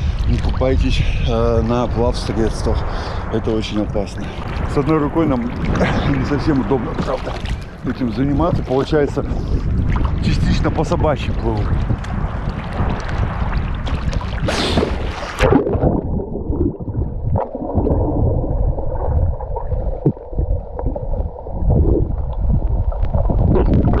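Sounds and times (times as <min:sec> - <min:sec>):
muffled underwater rumbling: 0:00.0 - 0:24.0
water splashing from swimming: 0:04.3 - 0:08.2, 0:11.5 - 0:24.0
loud splash: 0:11.5 - 0:18.3.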